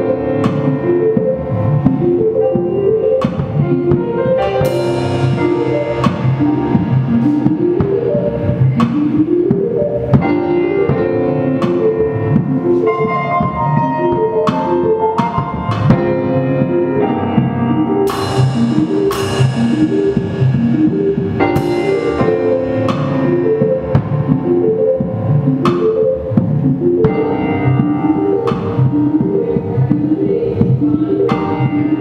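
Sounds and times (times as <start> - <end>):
drum kit playing: 0.0 - 32.0
cymbal crashes: 18.1 - 22.7.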